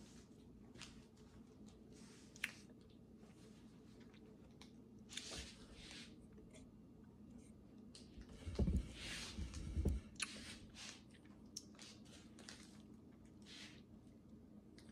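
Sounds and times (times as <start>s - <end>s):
low bumps: 8.2s - 10.1s.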